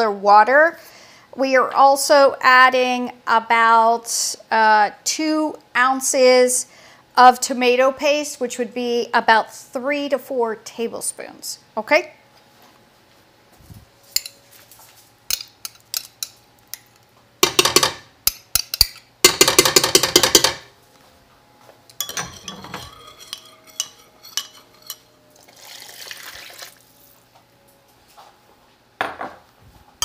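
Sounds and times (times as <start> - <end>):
metal spoon stirring in glass: 22.0 - 25.1.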